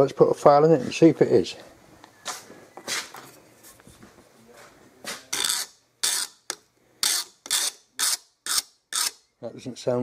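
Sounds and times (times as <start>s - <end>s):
steel file rasping on metal: 5.3s - 9.2s.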